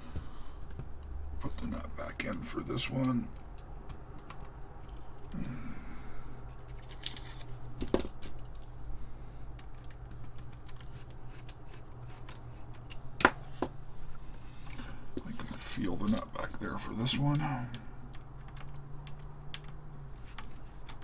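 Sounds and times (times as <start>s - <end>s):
sharp clicks: 2.1s - 4.9s.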